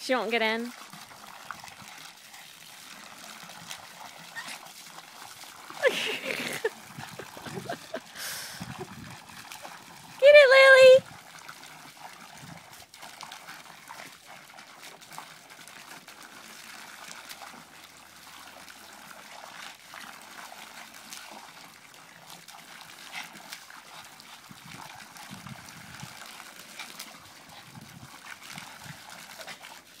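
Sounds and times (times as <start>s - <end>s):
hose water splashing into tub: 0.0s - 30.0s.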